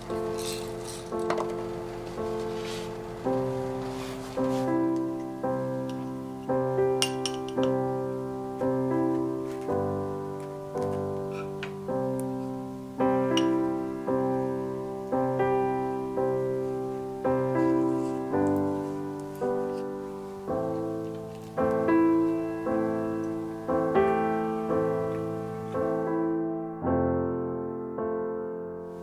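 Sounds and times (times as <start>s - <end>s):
slow piano chords: 0.0s - 29.0s.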